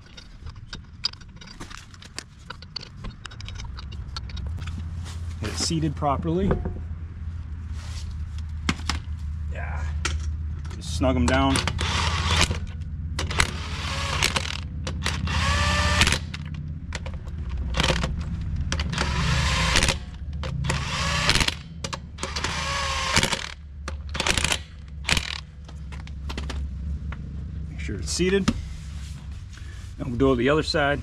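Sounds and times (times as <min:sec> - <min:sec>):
power tool whining in bursts: 0:11.6 - 0:16.5, 0:18.8 - 0:21.6, 0:22.2 - 0:23.6.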